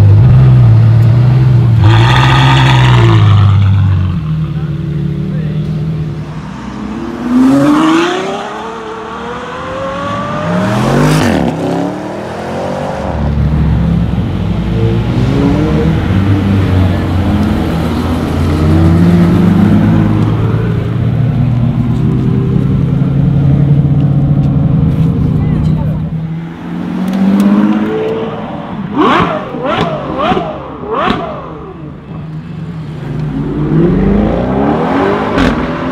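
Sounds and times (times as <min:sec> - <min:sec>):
sports car engine revving: 0:26.2 - 0:31.9, 0:32.8 - 0:35.9.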